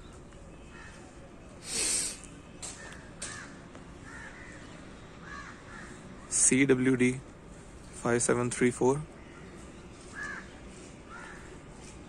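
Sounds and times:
outdoor background noise: 0.0s - 12.0s
crows cawing: 0.7s - 1.0s, 2.8s - 6.3s, 9.2s - 11.6s.

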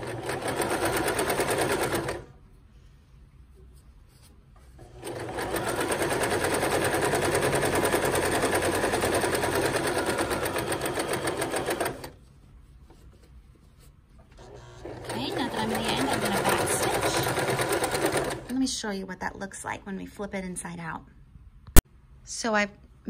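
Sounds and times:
sewing machine stitching: 0.0s - 2.3s, 4.8s - 12.2s, 14.3s - 18.6s.

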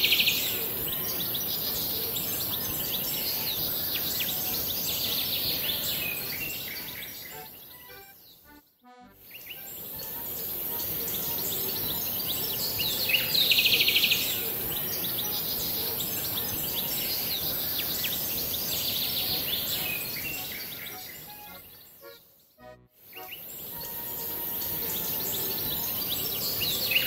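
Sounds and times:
steady hiss: 0.0s - 8.0s, 9.2s - 22.0s, 23.0s - 27.0s
rapid pulsing bird trill: 9.3s - 22.1s.

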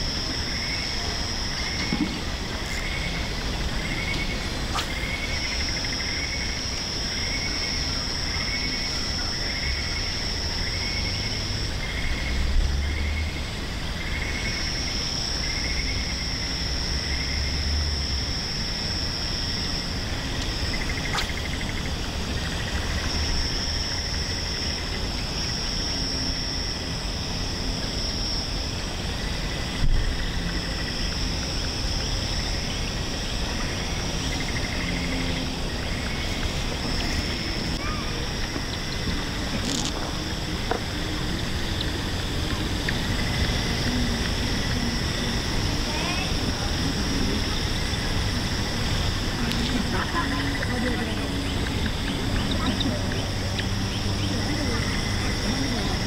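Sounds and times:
high-pitched insect buzz: 0.0s - 56.0s
pulsing insect chirping: 0.0s - 56.0s.

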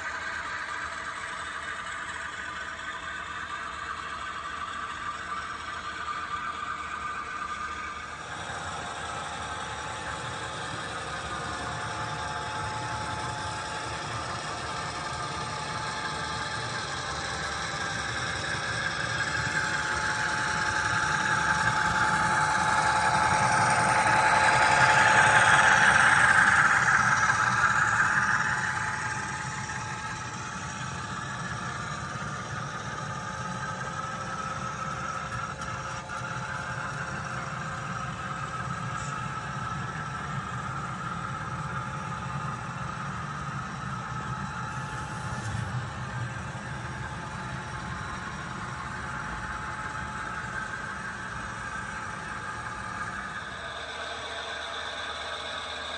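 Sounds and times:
model train running on track: 0.0s - 55.9s.

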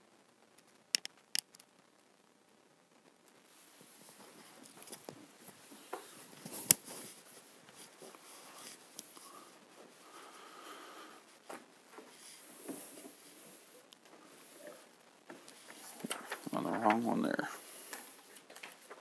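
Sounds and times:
sharp clicks: 0.9s - 1.7s
pages rustling: 11.4s - 19.0s.

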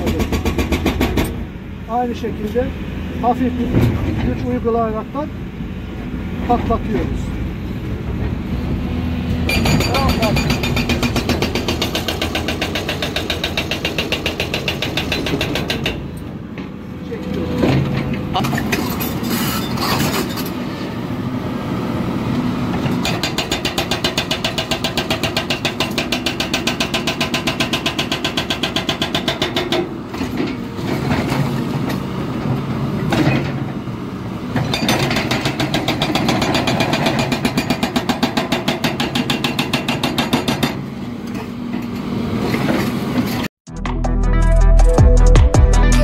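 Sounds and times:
hydraulic breaker hammering rock: 0.0s - 1.4s, 9.4s - 16.1s, 22.7s - 30.0s, 34.5s - 40.8s.

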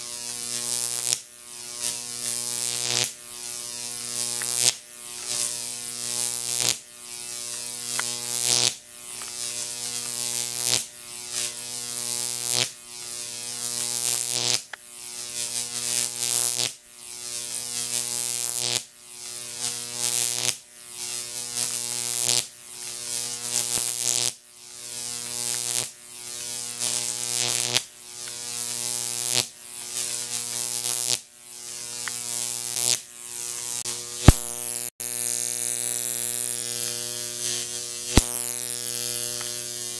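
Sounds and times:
electric arc buzzing: 0.0s - 39.9s
sharp click: 34.2s - 34.5s.

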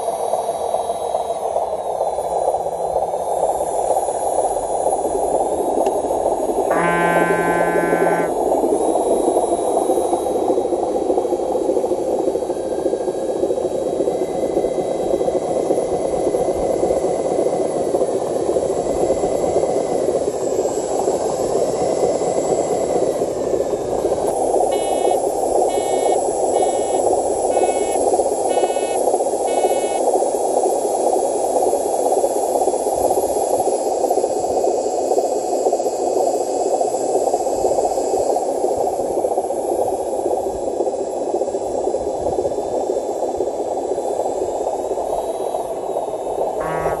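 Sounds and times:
radio-controlled truck running: 6.7s - 8.3s, 23.9s - 30.6s, 45.0s - 47.0s
short beeps: 6.7s - 8.3s, 24.8s - 27.0s, 46.6s - 47.0s.

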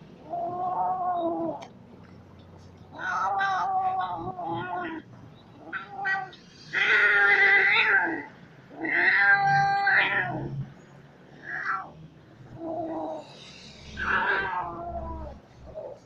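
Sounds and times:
kitten growling yowls: 0.2s - 1.6s, 2.9s - 5.0s, 5.6s - 10.6s, 11.4s - 12.0s, 12.6s - 16.0s.

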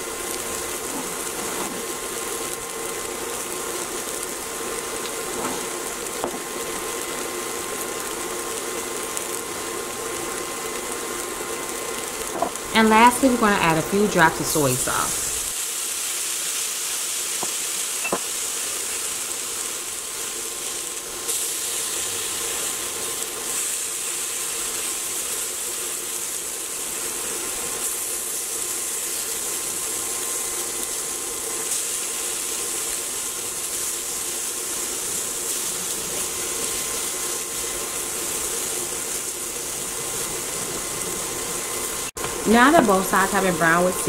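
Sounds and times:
tofu sizzling in skillet: 0.0s - 12.7s, 14.4s - 43.9s.

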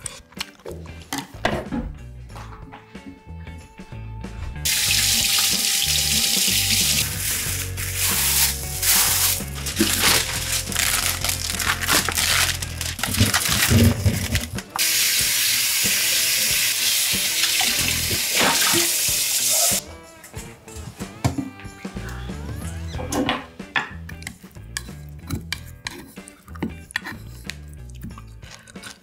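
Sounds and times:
tap water running into sink: 4.7s - 7.6s, 14.8s - 19.8s.

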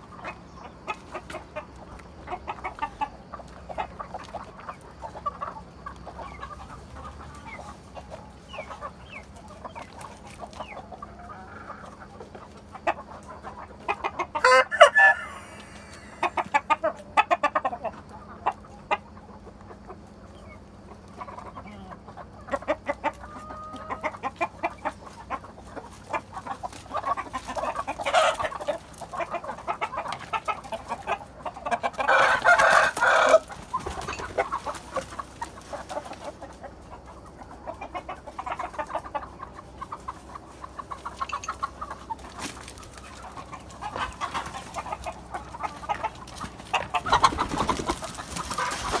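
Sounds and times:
chickens clucking: 0.0s - 49.0s
rooster crowing: 14.4s - 16.4s, 32.0s - 33.5s.

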